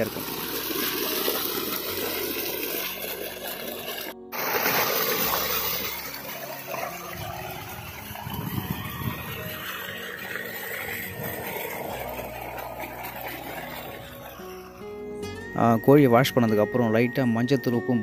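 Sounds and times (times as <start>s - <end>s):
water splashing on chicken pieces: 0.0s - 7.2s
water gushing from a pipe: 0.0s - 15.2s.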